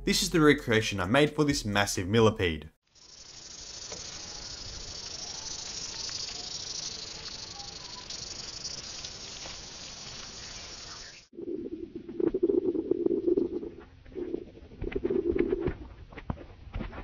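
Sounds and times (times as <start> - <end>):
high stridulation hiss: 2.9 - 11.3.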